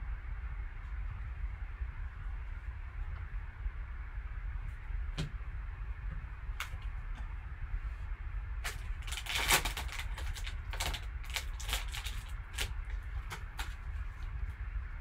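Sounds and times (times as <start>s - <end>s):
steady low hum: 0.0s - 15.0s
foil wrapper crinkling: 8.6s - 14.3s.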